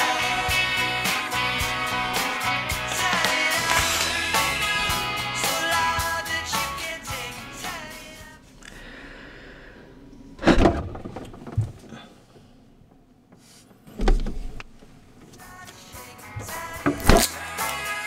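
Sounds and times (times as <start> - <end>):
refrigerator door thudding: 10.4 - 11.8, 14.0 - 14.6, 16.9 - 17.3.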